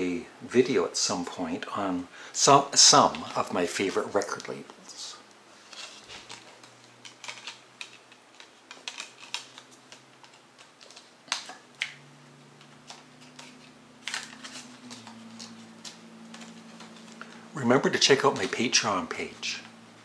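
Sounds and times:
faint low hum: 0.0 - 20.0
plastic case clicks and crackles: 6.2 - 12.0.

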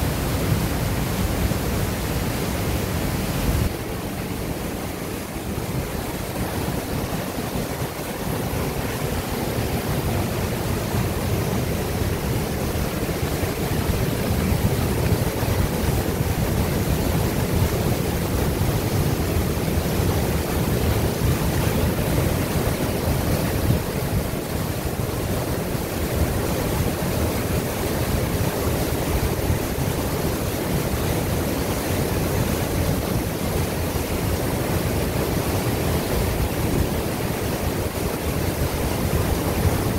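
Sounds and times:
waterfall rushing water: 0.0 - 39.9.

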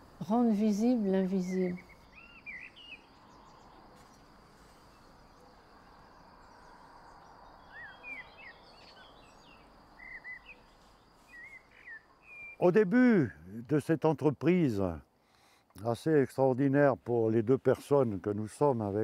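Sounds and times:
faint outdoor background noise: 0.0 - 19.0
short bird chirps: 7.7 - 12.6.

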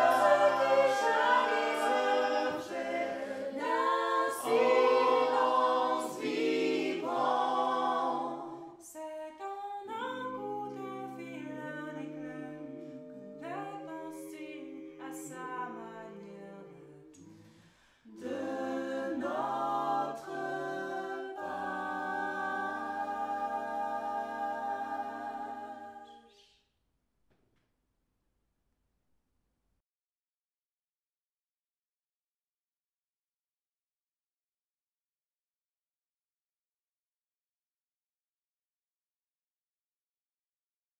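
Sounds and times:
a cappella group singing in harmony: 0.0 - 26.4.

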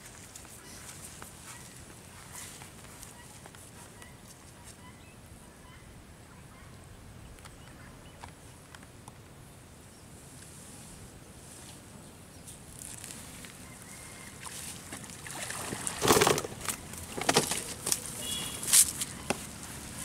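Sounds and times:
water splashing off net: 14.4 - 17.7.

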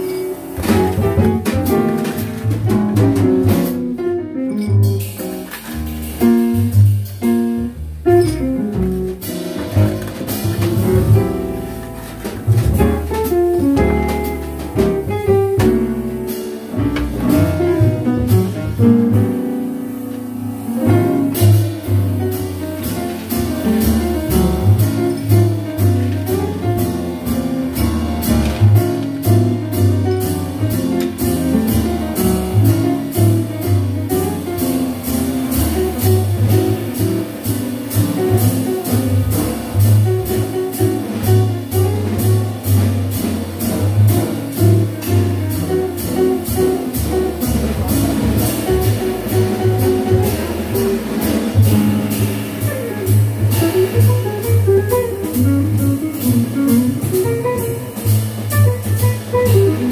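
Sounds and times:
jazz band playing: 0.0 - 59.9.

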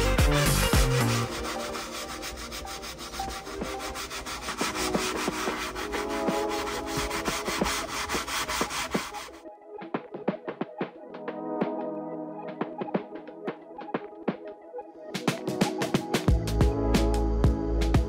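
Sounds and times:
scrubbing leather seat: 0.5 - 9.4.

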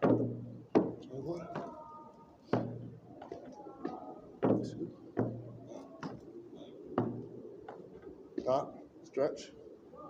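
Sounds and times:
boots stamping on concrete: 0.0 - 1.8, 2.4 - 6.3, 7.0 - 7.8
man talking: 1.0 - 2.0, 8.4 - 9.6.

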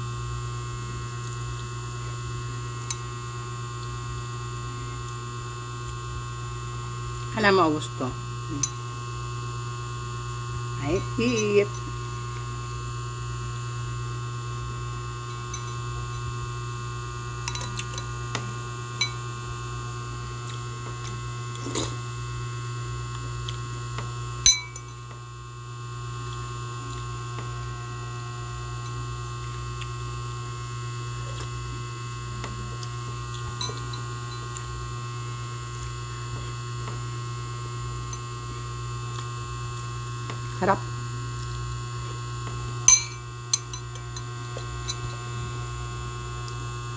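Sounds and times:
electrical hum: 0.0 - 46.9
metal spoon clinking glass bowl: 11.2 - 11.9, 24.5 - 25.0, 42.9 - 45.1.

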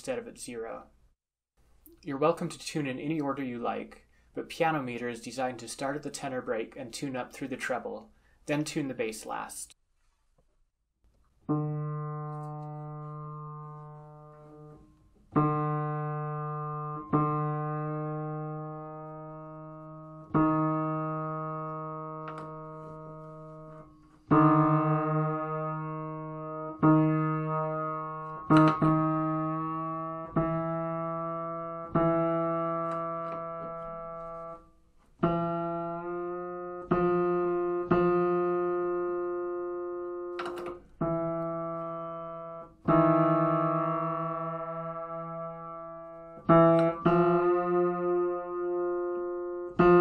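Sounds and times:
piano notes struck firmly: 15.4 - 34.5.

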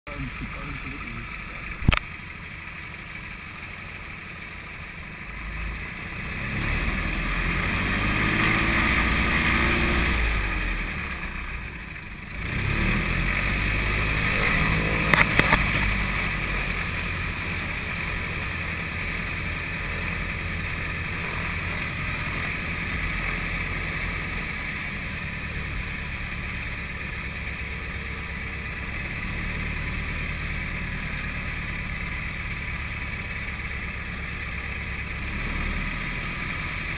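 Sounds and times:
propeller airplane engine: 0.1 - 36.9
sharp clicks: 1.7 - 2.1.

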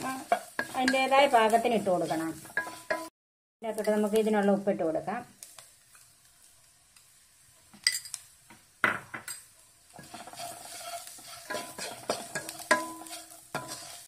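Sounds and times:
spatula scraping onions: 0.0 - 3.1, 9.3 - 14.0
onions sizzling: 0.0 - 14.0.

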